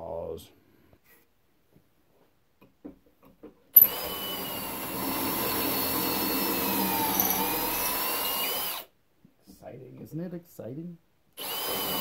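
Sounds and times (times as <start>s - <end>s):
cordless drill drilling into wood: 3.8s - 8.9s, 11.4s - 12.0s.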